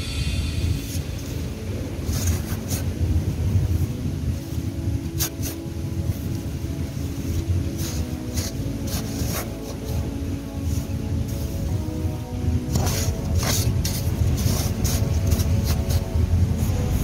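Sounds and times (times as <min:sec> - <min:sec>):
sand shaken through metal scoop: 0:00.0 - 0:03.6, 0:07.2 - 0:11.9, 0:12.7 - 0:17.0
wind rumble on microphone: 0:00.0 - 0:17.0.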